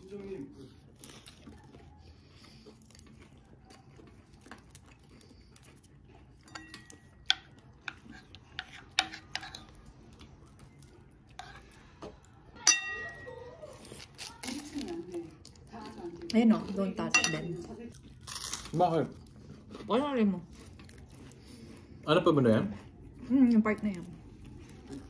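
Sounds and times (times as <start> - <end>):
utensils clinking on dishes: 6.4 - 9.7, 12.6 - 13.6, 17.0 - 17.7.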